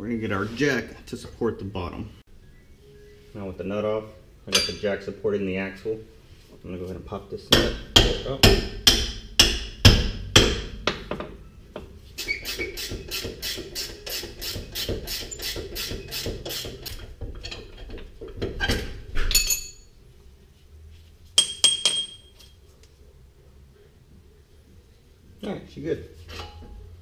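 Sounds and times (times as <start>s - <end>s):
metal tools clattering and clinking: 4.5s - 4.9s, 17.0s - 19.9s, 26.2s - 26.8s
hammer knocking on bolt: 7.5s - 11.4s.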